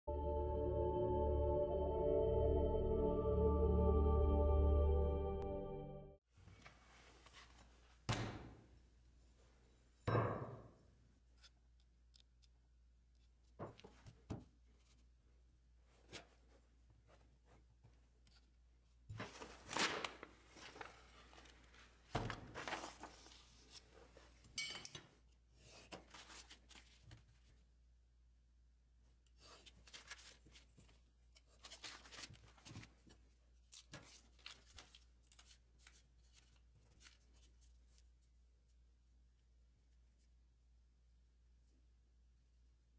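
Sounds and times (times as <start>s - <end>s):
paper rustling: 19.1s - 24.4s, 25.7s - 27.6s, 29.4s - 38.3s.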